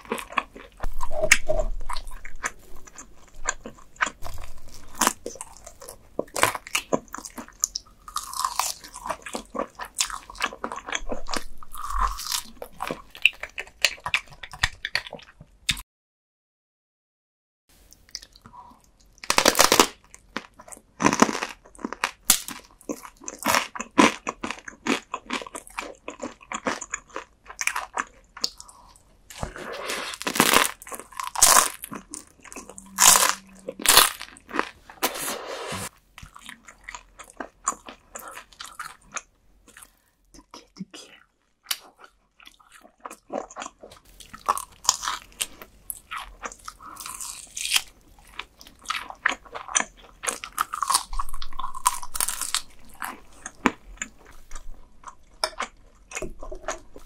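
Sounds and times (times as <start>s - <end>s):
wet gnawing and chewing meat: 0.0s - 15.8s, 19.1s - 34.7s, 36.0s - 57.0s
crunchy bites of toasted bread: 44.0s - 54.3s.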